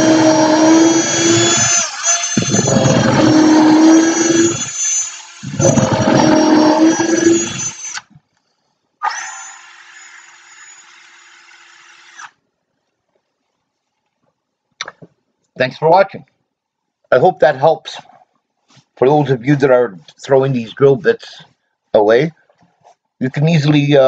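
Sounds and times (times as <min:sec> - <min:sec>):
cordless drill boring into wood: 0:00.0 - 0:08.1, 0:09.0 - 0:12.4
drill spinning freely: 0:00.0 - 0:08.1, 0:09.0 - 0:12.4.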